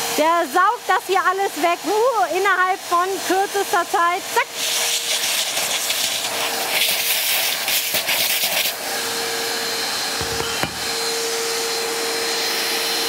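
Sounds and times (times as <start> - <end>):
vacuum cleaner running: 0.0 - 13.0
vacuum cleaner slurping water: 0.0 - 13.0.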